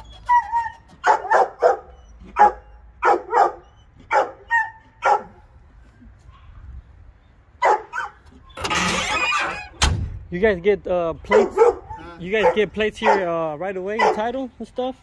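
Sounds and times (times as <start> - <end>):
dog barking: 0.5 - 5.4, 7.6 - 8.2, 11.3 - 13.4, 14.0 - 14.3.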